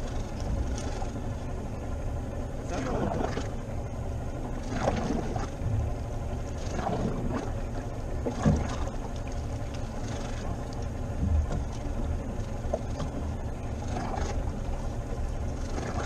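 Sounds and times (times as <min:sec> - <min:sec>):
water slapping boat hull: 0:00.0 - 0:16.0
wind rumble on microphone: 0:04.7 - 0:14.9.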